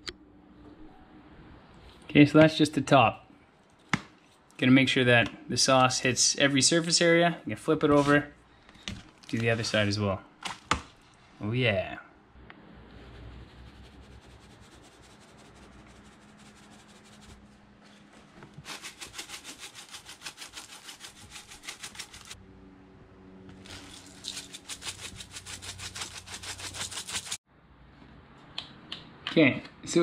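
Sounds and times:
seasoning rattling in shaker jar: 0:18.7 - 0:22.4, 0:23.6 - 0:27.4.

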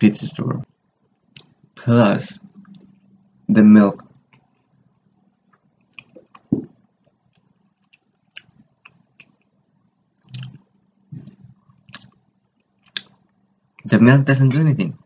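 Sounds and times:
person chewing food: 0:05.4 - 0:13.9
soft mouth clicks: 0:05.5 - 0:06.7, 0:07.4 - 0:09.5, 0:10.2 - 0:10.6, 0:11.2 - 0:12.2.

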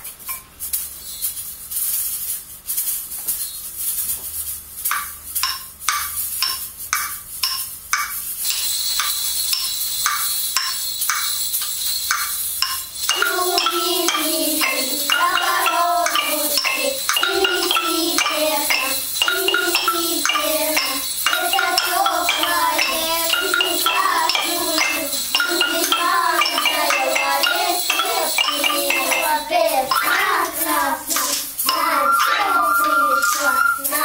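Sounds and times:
mallet percussion taps: 0:04.9 - 0:33.7
children chanting a rhyme: 0:13.1 - 0:34.0.

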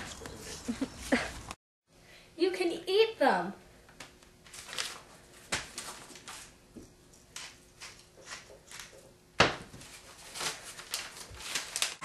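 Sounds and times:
loud paper crackle: 0:04.4 - 0:06.6, 0:09.8 - 0:12.0
paper crumpling and tearing: 0:04.5 - 0:06.6, 0:09.8 - 0:12.0.

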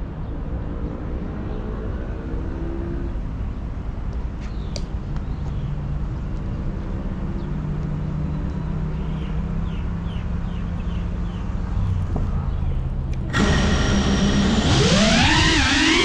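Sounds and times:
rumbling outdoor background: 0:00.0 - 0:16.0
steady low hum: 0:13.1 - 0:16.0.

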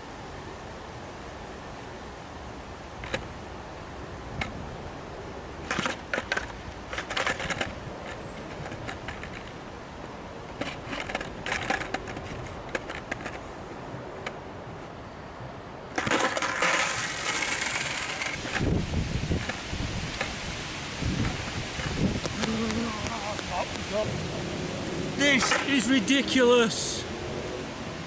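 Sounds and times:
outdoor background hiss: 0:00.0 - 0:28.0
skateboard clicking on ramp coping: 0:16.0 - 0:20.4.

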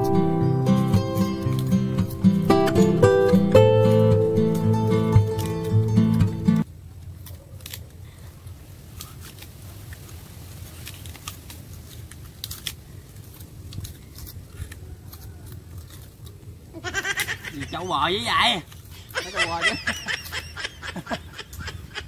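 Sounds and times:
strummed acoustic guitar: 0:00.0 - 0:06.6
sugarcane crunching: 0:00.0 - 0:17.9.

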